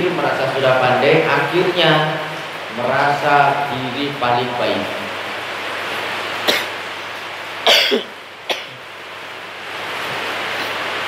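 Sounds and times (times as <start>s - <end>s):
person coughing: 6.5s - 6.8s, 7.6s - 8.8s.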